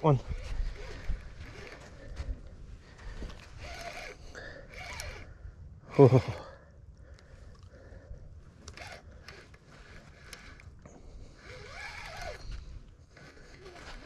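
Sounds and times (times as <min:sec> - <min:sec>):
fishing reel whirring: 0:00.3 - 0:02.1, 0:03.4 - 0:05.3, 0:08.7 - 0:14.0
small reel clicks: 0:03.4 - 0:05.3, 0:08.6 - 0:14.0.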